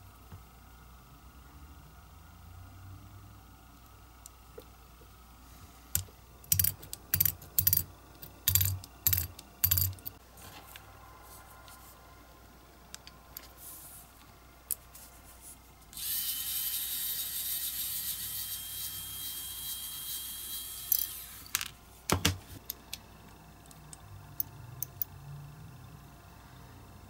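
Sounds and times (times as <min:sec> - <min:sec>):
small parts clicking and tapping: 0:05.9 - 0:10.2, 0:20.9 - 0:23.0, 0:23.6 - 0:25.2.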